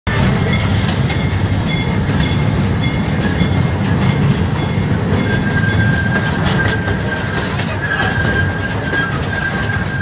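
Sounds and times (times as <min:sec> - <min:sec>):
ride train rumbling: 0:00.1 - 0:10.0.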